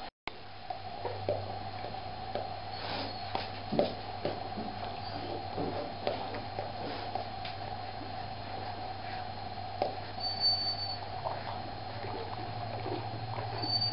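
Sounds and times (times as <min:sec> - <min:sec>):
steady hum: 0:00.0 - 0:13.9
high squeak: 0:10.2 - 0:11.0, 0:13.6 - 0:13.9.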